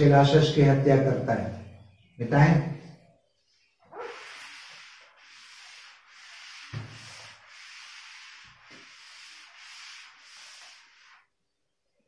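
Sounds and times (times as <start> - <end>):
duster rubbing on whiteboard: 3.8 - 11.4.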